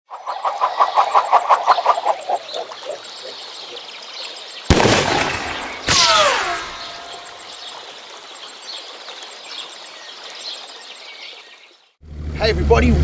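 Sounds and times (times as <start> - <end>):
bird calling rapid notes: 5.4 - 7.7.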